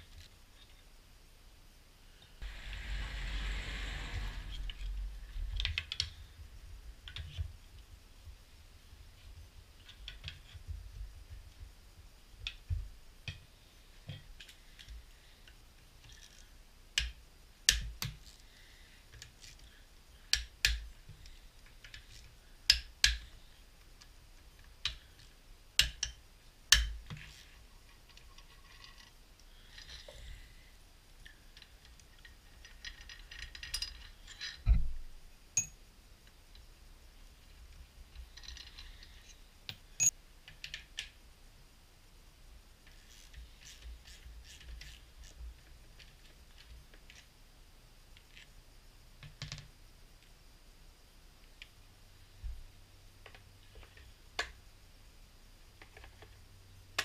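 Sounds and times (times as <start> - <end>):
rustling scrape: 2.4 - 5.6.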